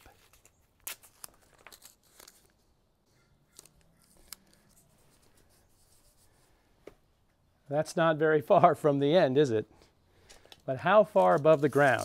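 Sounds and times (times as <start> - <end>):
tape handling clicks and rustles: 0.0 - 2.6, 10.2 - 12.0.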